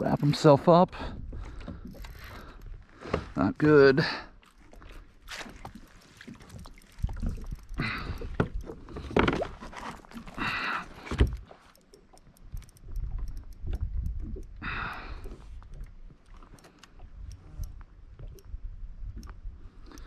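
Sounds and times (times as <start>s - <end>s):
water sloshing: 0.0s - 18.5s
gear knocking against kayak hull: 6.5s - 10.3s.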